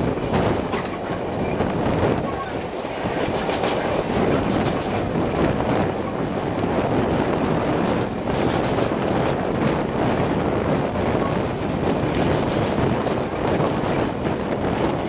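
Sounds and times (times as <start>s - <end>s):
wheels clacking over rail joints: 0.0s - 6.7s
train rolling: 0.0s - 15.0s.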